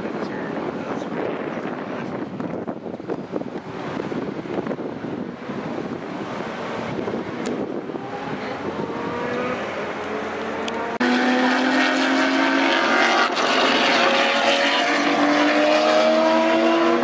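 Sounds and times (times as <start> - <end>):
wind noise on microphone: 0.0 - 11.0
race car engines accelerating: 0.0 - 17.0.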